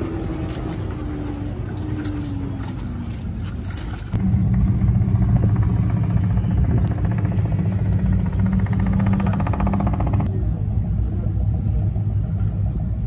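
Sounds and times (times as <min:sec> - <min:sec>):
water noise: 0:00.0 - 0:10.3
low engine drone: 0:00.0 - 0:13.0
wind: 0:00.0 - 0:13.0
distant powerboat engine winding down: 0:04.2 - 0:13.0.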